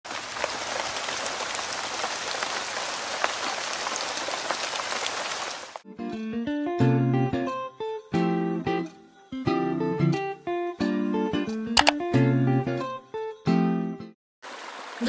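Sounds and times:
steady rain falling: 0.1s - 5.8s, 14.4s - 15.0s
plucked guitar notes: 5.9s - 13.0s.

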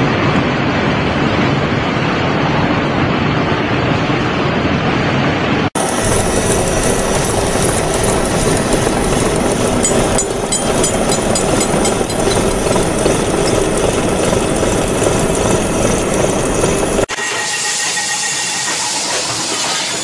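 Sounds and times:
milling machine cutting metal: 5.8s - 20.0s.

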